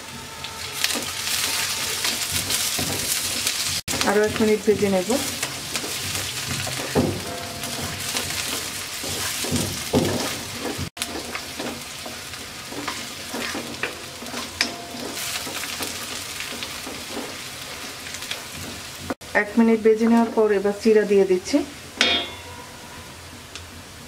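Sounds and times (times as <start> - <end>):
food sizzling in hot oil: 0.0 - 22.5
wooden spatula scraping a pan: 0.7 - 19.2.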